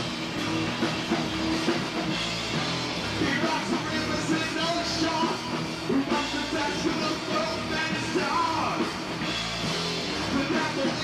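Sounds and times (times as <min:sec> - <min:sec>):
rock band playing live: 0:00.0 - 0:11.0
person singing: 0:10.3 - 0:11.0.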